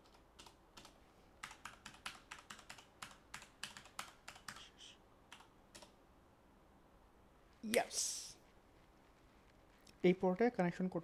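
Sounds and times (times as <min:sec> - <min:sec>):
faint keyboard typing: 0:00.0 - 0:06.0.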